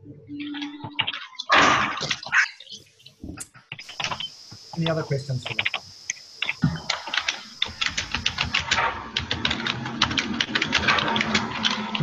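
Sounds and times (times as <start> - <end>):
keyboard typing clicks: 3.7 - 12.0.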